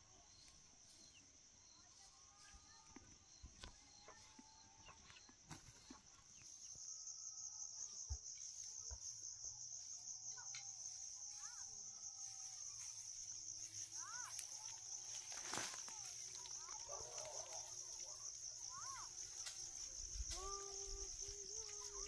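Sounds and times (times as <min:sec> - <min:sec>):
high-pitched insect chirring: 0:06.4 - 0:22.0.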